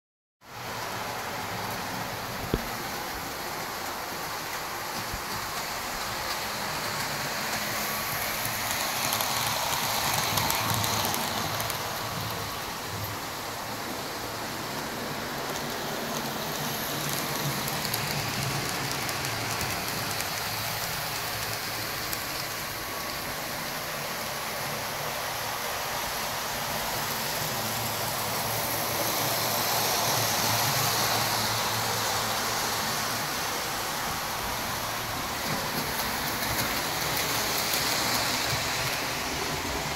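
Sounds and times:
model train wheels clattering: 2.4 - 13.2, 14.6 - 23.3, 28.2 - 39.9.

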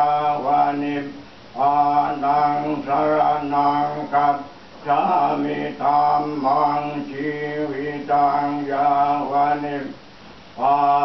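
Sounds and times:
voices chanting prayers: 0.0 - 10.0, 10.6 - 11.0.

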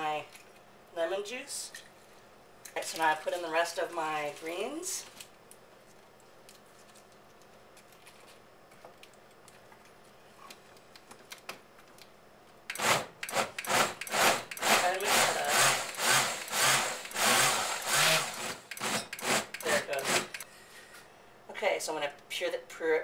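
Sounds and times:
blender chopping leafy greens: 12.8 - 20.4.

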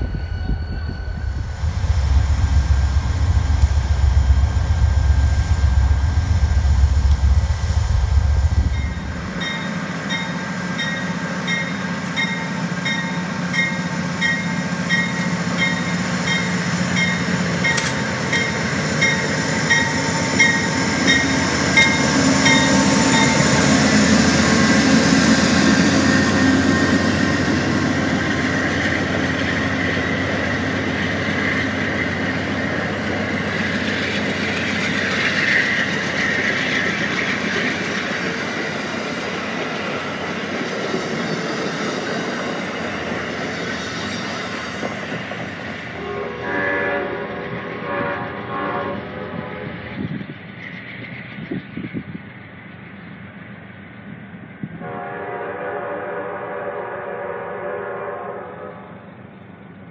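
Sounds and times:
diesel locomotive engine running: 0.0 - 59.9
train wheels clicking over rail joints: 2.6 - 46.0
locomotive bell ringing: 8.7 - 24.6.

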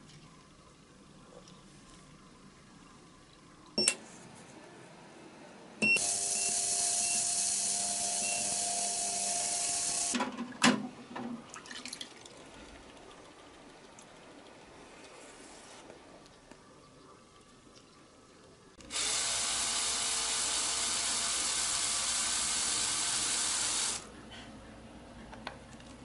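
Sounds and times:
ultrasonic cleaner hissing buzz: 6.0 - 10.2, 18.9 - 24.1.

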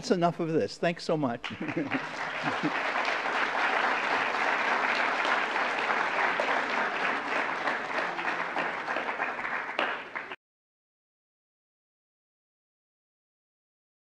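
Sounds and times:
audience applauding: 1.4 - 10.4.

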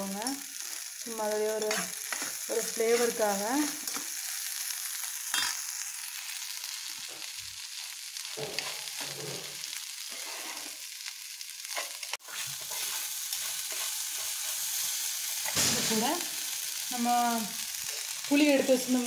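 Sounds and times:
chillies sizzling in oil: 0.0 - 19.0
metal spatula scraping pan: 11.7 - 14.8.

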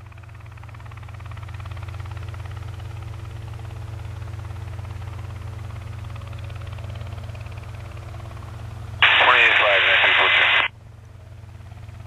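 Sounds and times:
helicopter engine droning: 9.0 - 10.7.

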